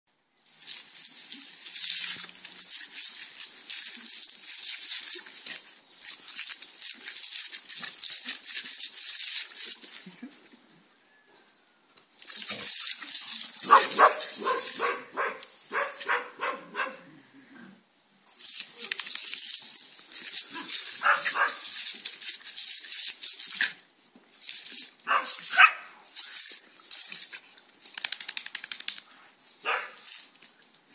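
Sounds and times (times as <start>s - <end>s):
garden hose spraying water: 0.4s - 10.4s, 12.1s - 16.6s, 18.3s - 30.7s
dog barking: 13.6s - 17.1s, 20.6s - 21.6s, 25.1s - 25.9s, 29.6s - 30.0s.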